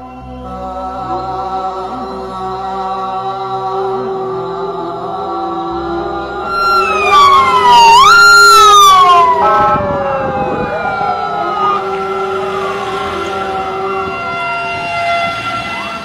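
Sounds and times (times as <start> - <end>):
background music: 0.0 - 16.0
police sirens wailing: 6.1 - 16.0.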